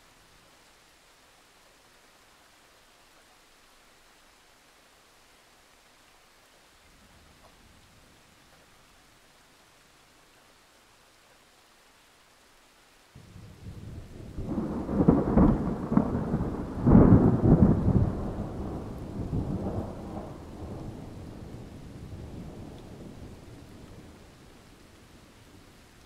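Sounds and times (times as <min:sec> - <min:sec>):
thunder rumbling and cracking: 0:13.2 - 0:24.2.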